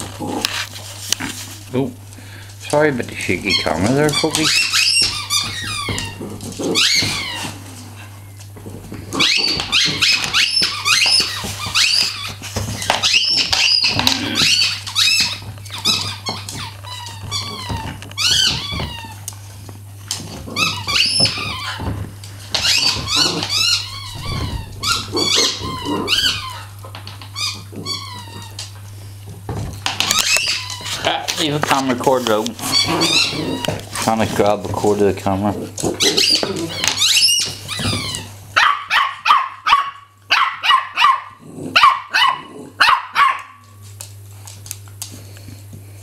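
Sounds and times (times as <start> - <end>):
squeaky dog toy squeaking: 3.4 - 6.2, 36.0 - 38.3.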